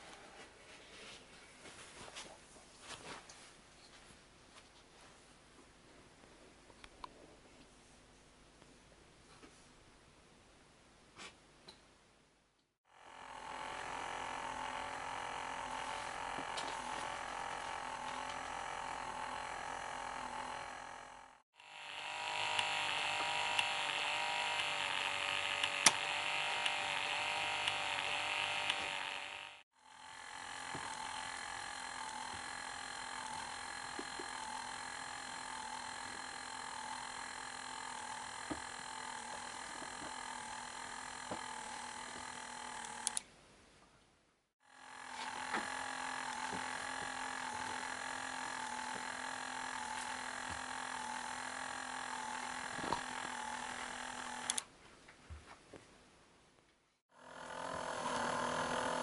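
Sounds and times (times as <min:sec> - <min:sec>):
electric motor whirring: 0:12.8 - 0:43.2, 0:44.6 - 0:54.7, 0:57.1 - 0:59.0.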